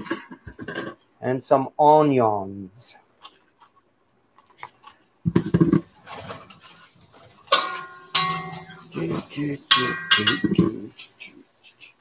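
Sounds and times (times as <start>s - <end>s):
metal spatula scraping wok: 6.0s - 10.6s
metallic clangs: 7.5s - 10.8s.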